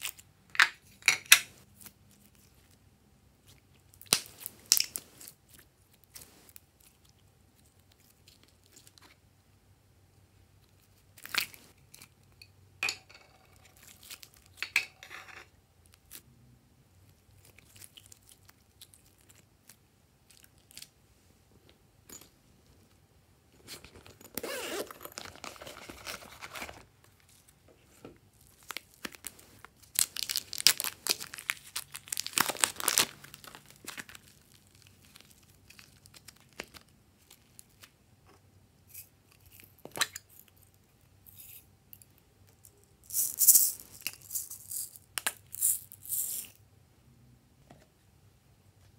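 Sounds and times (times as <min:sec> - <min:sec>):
slime sticky tearing and crackling: 0:28.5 - 0:36.8.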